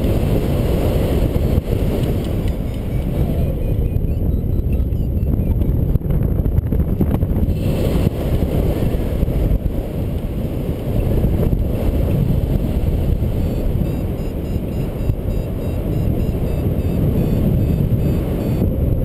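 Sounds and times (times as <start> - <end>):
wind buffeting microphone: 0.0 - 19.0
high beeps: 2.5 - 5.6, 13.4 - 18.7.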